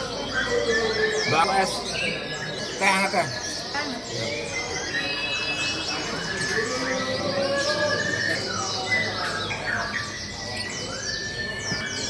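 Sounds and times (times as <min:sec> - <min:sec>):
many songbirds singing: 0:00.0 - 0:12.0.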